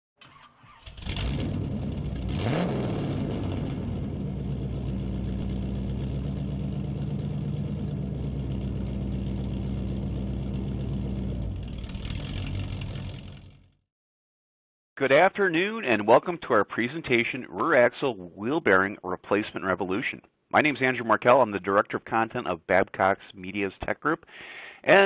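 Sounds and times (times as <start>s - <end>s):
engine running: 0.8s - 13.8s.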